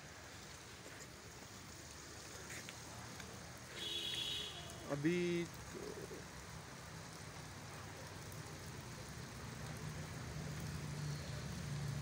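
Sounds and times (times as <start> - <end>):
faint background noise: 0.0 - 12.0
low engine hum: 8.4 - 12.0.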